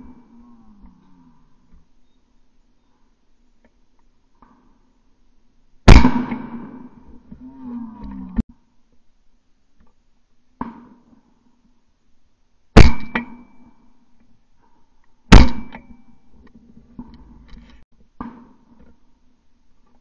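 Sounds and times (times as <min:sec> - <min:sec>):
loud sharp bangs with metallic ring: 0:05.9 - 0:07.1, 0:12.8 - 0:13.7, 0:15.3 - 0:16.2.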